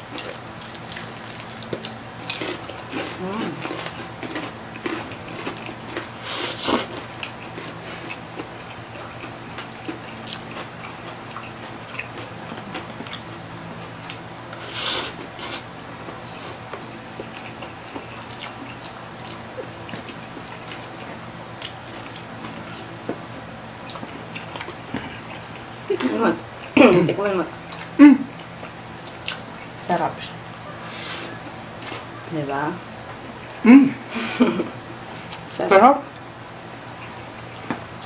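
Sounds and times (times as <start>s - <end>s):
chewing: 0.1s - 13.4s, 14.0s - 26.8s, 27.5s - 29.8s
noodle slurping: 6.2s - 6.9s.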